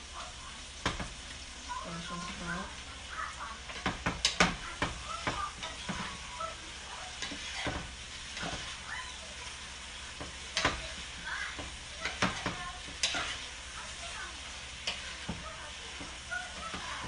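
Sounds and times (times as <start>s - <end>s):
vegetables sizzling in a pan: 0.0s - 17.0s
utensil scraping and clacking on pan: 3.6s - 17.0s.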